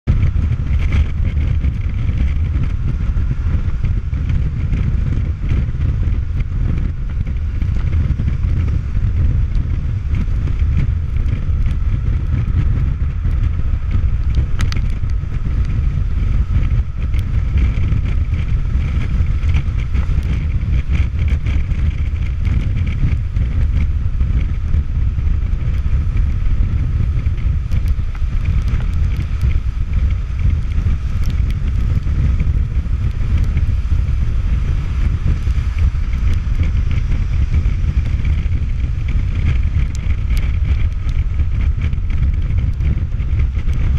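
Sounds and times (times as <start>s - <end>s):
faint motorcycle engine hum: 0.0s - 43.9s
wind rushing over microphone: 0.0s - 43.9s.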